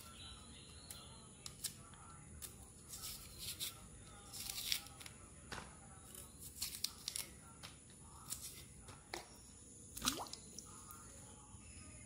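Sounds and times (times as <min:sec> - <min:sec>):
peel tearing by hand: 0:06.1 - 0:07.4.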